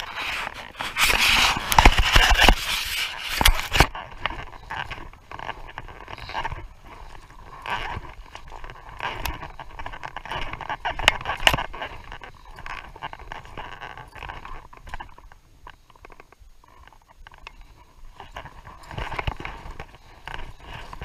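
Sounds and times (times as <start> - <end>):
footsteps crunching on stones: 0.0 - 15.4.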